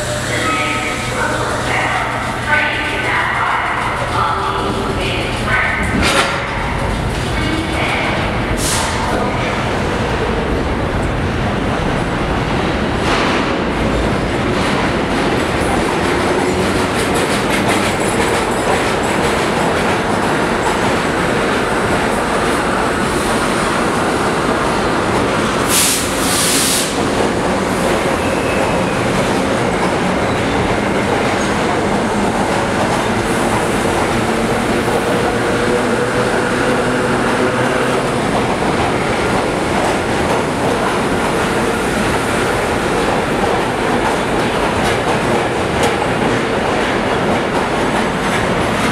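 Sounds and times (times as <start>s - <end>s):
train wheels rumbling and clattering: 0.0s - 48.9s
air hissing: 25.7s - 27.0s.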